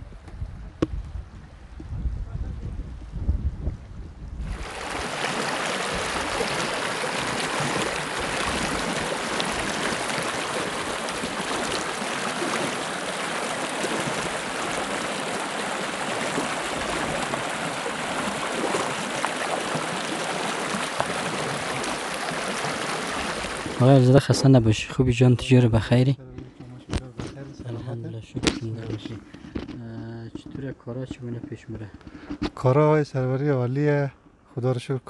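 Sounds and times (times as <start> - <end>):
stream running over rocks: 4.5 - 24.6.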